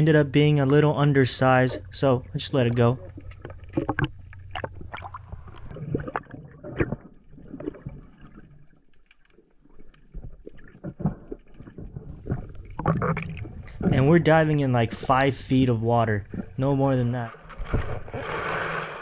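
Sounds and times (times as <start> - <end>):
underwater gurgling bubbles: 1.7 - 15.0, 16.2 - 16.6.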